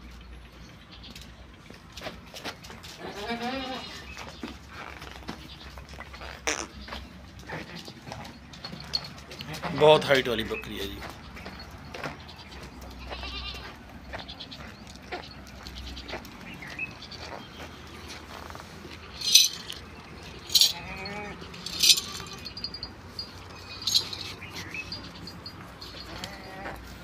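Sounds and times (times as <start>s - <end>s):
goats bleating: 3.0s - 4.1s, 12.4s - 13.8s, 20.5s - 22.7s, 25.9s - 26.9s.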